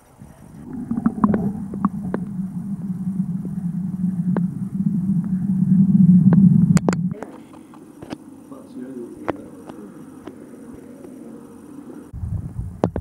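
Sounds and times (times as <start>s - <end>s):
underwater low rumble: 0.0s - 7.6s.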